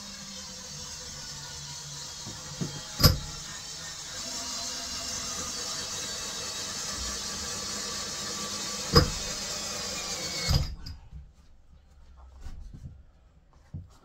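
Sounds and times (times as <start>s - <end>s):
cordless drill driving screw: 0.0s - 10.9s.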